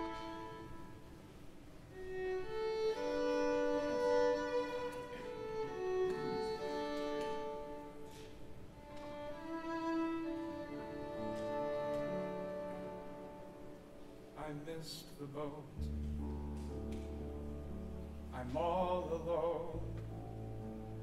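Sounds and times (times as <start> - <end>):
slow violin melody: 0.0 - 14.5.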